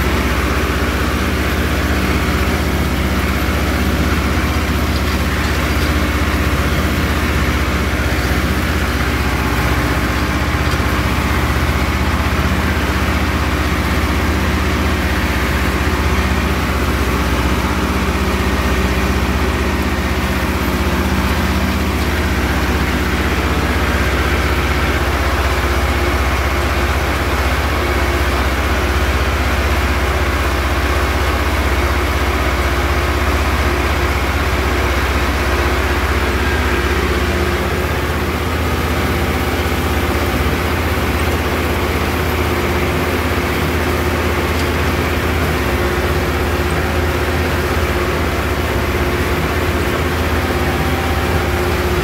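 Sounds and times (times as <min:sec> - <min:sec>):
tractor engine low rumble: 0:00.0 - 0:52.0.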